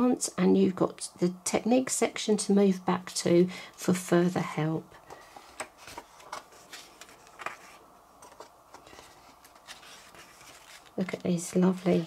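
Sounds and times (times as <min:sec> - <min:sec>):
book pages turning: 0:05.6 - 0:12.0.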